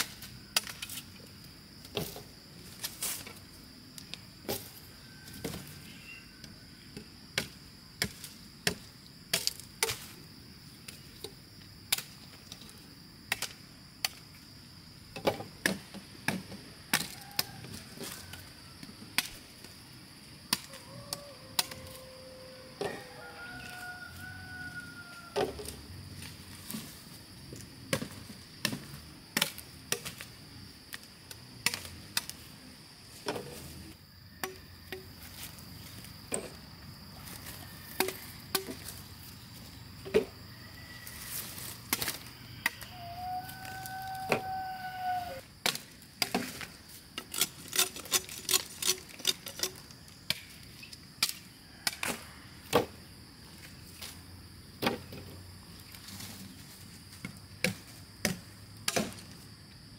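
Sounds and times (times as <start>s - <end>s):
high insect drone: 0.0s - 59.9s
machete chopping sugar cane: 57.6s - 59.2s.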